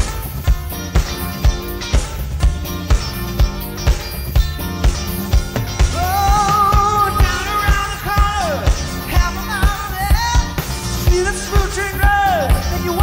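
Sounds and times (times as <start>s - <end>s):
live rock band playing: 0.0s - 13.0s
person singing: 5.9s - 13.0s.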